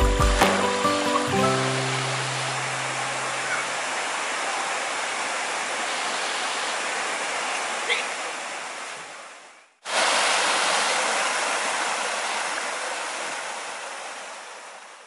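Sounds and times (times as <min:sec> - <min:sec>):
water rushing over a weir: 0:00.4 - 0:15.0.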